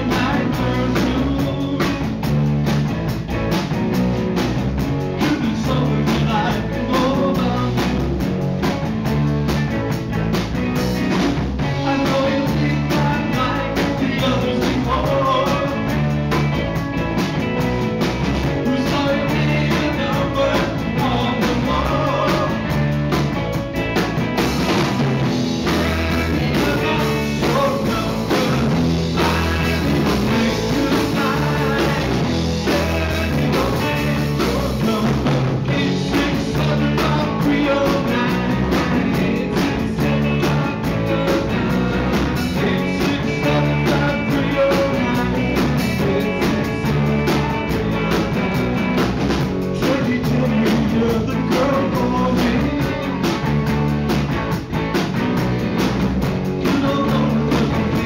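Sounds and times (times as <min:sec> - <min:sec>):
man singing into microphone: 0:00.0 - 0:02.0, 0:05.2 - 0:08.0, 0:11.7 - 0:16.0, 0:18.6 - 0:22.6, 0:25.6 - 0:47.4, 0:49.8 - 0:53.2, 0:56.6 - 0:58.0
live rock band playing: 0:00.0 - 0:58.0.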